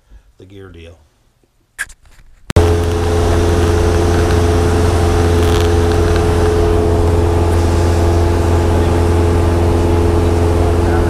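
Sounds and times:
aircraft engine drone in cabin: 0:02.6 - 0:11.0.

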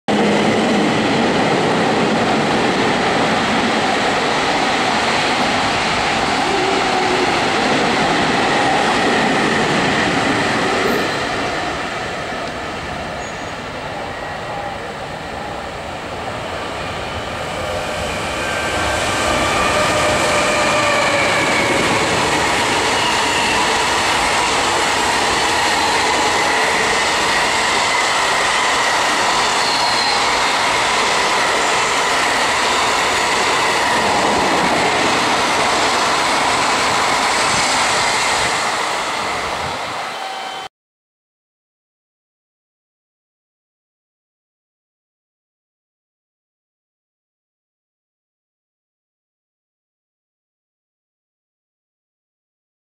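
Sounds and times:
train wheels rumbling on rails: 0:00.1 - 0:40.6
wheels squealing: 0:13.2 - 0:14.7, 0:29.3 - 0:30.5.

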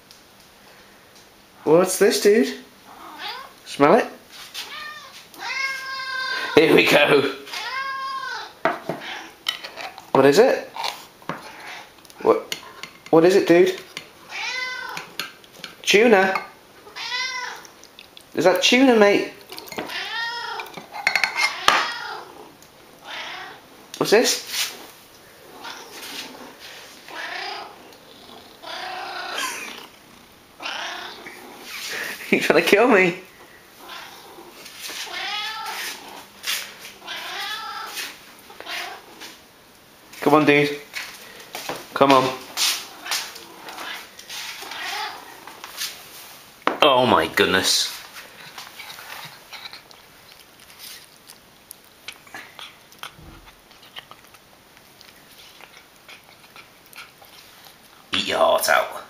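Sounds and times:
cat meowing: 0:02.9 - 0:03.6, 0:04.6 - 0:06.6, 0:07.5 - 0:09.4, 0:14.3 - 0:15.2, 0:16.8 - 0:17.7, 0:19.6 - 0:20.8, 0:21.4 - 0:22.4, 0:23.0 - 0:23.6, 0:27.1 - 0:27.9, 0:28.5 - 0:29.9, 0:30.6 - 0:31.7, 0:33.8 - 0:36.2, 0:37.0 - 0:39.2, 0:42.8 - 0:45.4
cat chewing: 0:17.6 - 0:18.3, 0:48.0 - 0:58.1.

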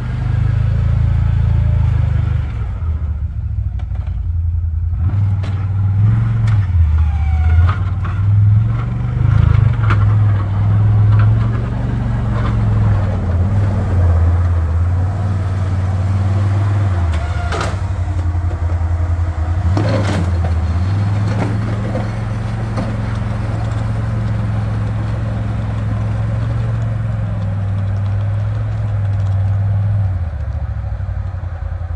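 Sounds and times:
atv engine running: 0:08.8 - 0:31.9
brief clatters: 0:25.7 - 0:30.6.

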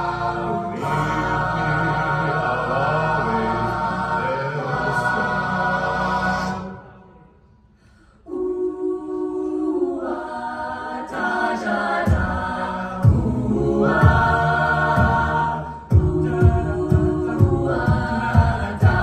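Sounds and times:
vocal bass: 0:00.0 - 0:06.7, 0:12.1 - 0:19.0
a cappella group singing: 0:00.0 - 0:07.4, 0:08.1 - 0:19.0
vocal percussion beat: 0:11.4 - 0:19.0.

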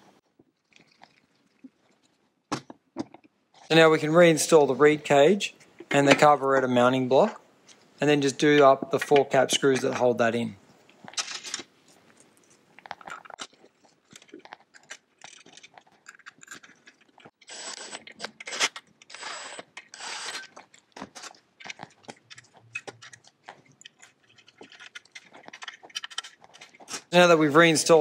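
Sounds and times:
metal parts clicking and knocking: 0:14.1 - 0:26.9.

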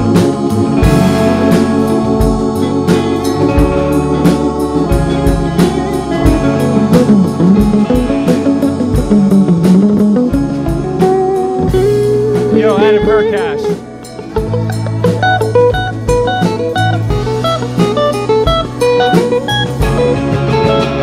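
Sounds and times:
drum kit: 0:00.0 - 0:21.0
electric bass: 0:00.0 - 0:21.0
electric guitar lead: 0:00.0 - 0:21.0.

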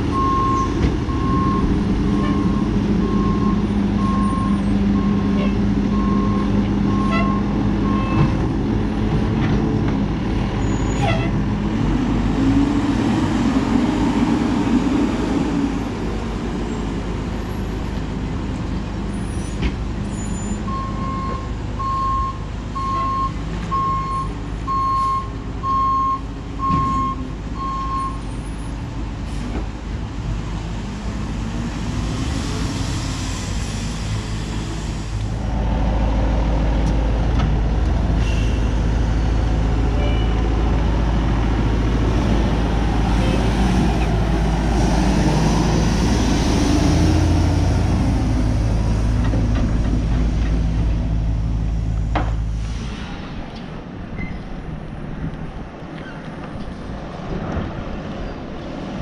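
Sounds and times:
truck backup alarm beeping: 0:00.1 - 0:08.3, 0:20.4 - 0:28.3.

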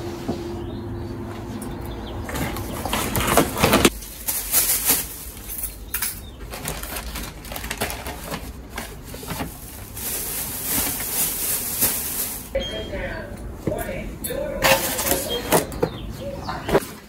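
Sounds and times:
plastic and paper bags rustling: 0:02.3 - 0:13.1, 0:14.6 - 0:16.0, 0:16.6 - 0:17.0.

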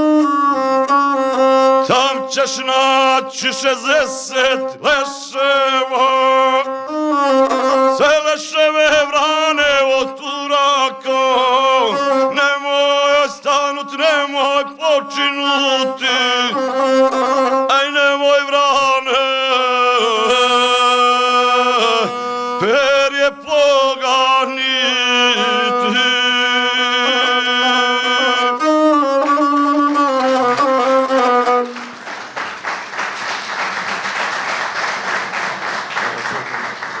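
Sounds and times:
bowed fiddle melody: 0:00.0 - 0:32.0
audience applause: 0:30.5 - 0:37.0.

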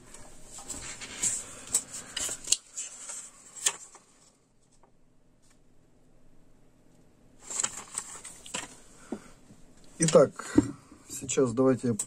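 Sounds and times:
paper rustling: 0:00.5 - 0:05.6, 0:07.4 - 0:08.8.

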